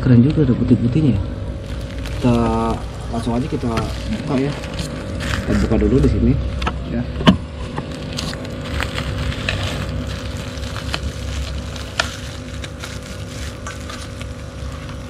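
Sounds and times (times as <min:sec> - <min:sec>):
plastic bag crinkling: 0:01.6 - 0:05.8, 0:07.8 - 0:15.0.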